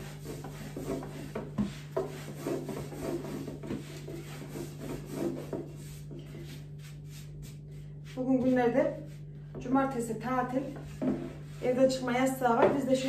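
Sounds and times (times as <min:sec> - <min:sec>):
rolling pin rolling over dough: 0:00.0 - 0:13.0.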